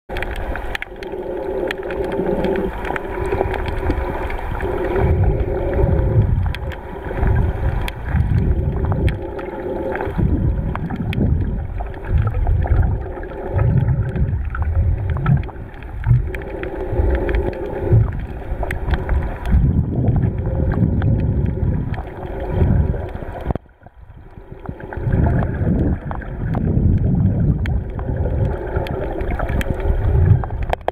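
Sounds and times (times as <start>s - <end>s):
crackle of small clicks: 0.1s - 30.9s
muffled underwater water rushing: 0.1s - 30.9s.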